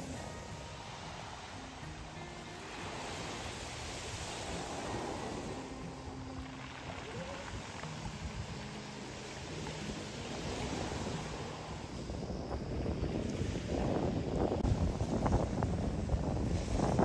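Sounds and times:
faint soft background music: 0.0s - 17.0s
surf washing on stones: 0.0s - 17.0s
wind: 0.0s - 17.0s.

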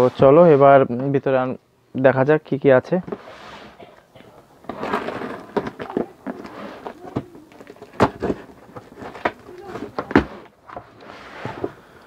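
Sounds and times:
cardboard and tape rustling: 4.6s - 11.9s.

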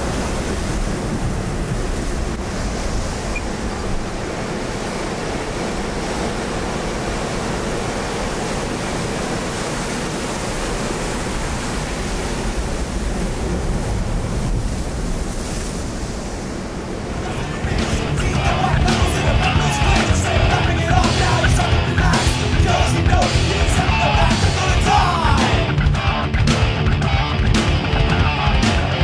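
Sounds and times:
wind buffeting microphone: 0.0s - 21.0s
ocean surf against rocks: 0.0s - 25.7s.

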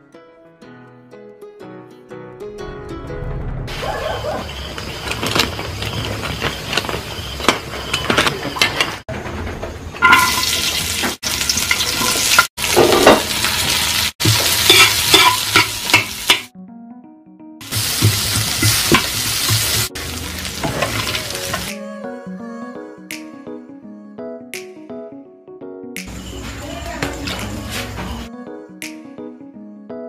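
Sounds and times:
oil sizzling in a wok: 10.0s - 16.5s, 17.6s - 21.7s.

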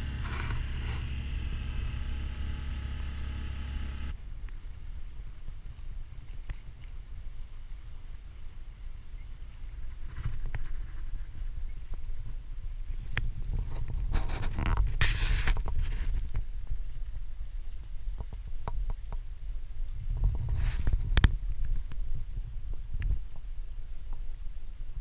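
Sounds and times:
water rushing along hull: 0.0s - 4.2s.

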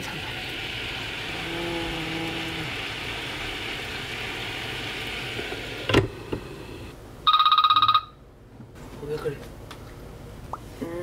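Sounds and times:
steamer hissing: 0.0s - 7.0s.

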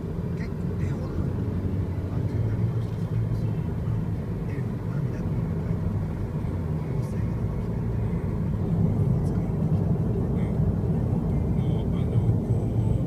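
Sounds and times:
car engine running: 0.0s - 13.0s
tyre and road noise: 0.0s - 13.0s.

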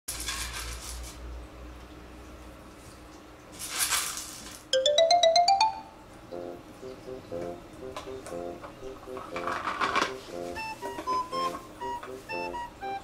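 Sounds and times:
rising bell-like chime notes: 4.8s - 6.1s
light background music: 4.8s - 13.0s.

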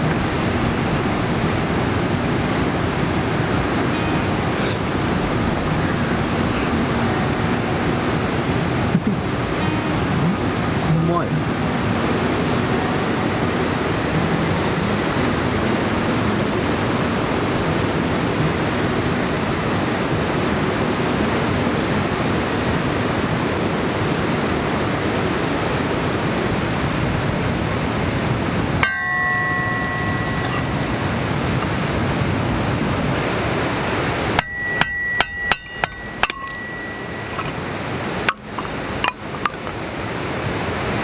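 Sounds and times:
steady rushing noise: 0.0s - 41.0s
hammer strikes on metal: 28.8s - 31.0s, 34.4s - 37.6s, 38.2s - 39.6s.

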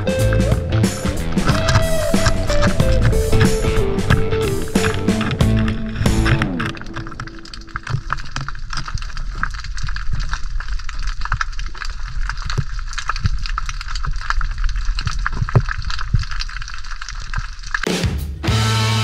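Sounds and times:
low underwater rumble: 0.0s - 11.2s
underwater crackling and clicking: 0.0s - 17.9s.

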